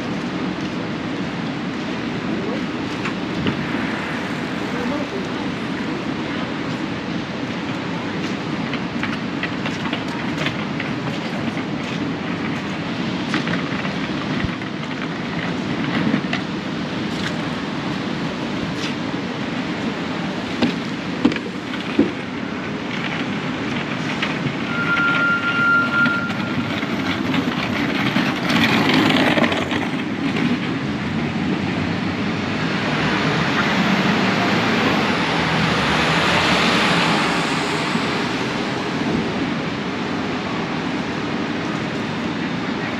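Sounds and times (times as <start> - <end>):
city street traffic: 0.0 - 42.9
vehicles passing: 0.0 - 42.9
brief high tone: 24.7 - 26.6.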